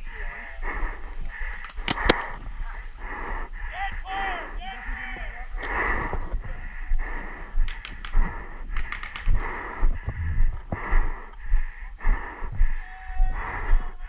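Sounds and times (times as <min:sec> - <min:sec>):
heavy breathing behind a mask: 0:00.0 - 0:14.0
paintball marker shots: 0:01.8 - 0:02.4
dull low thumps: 0:09.4 - 0:12.8.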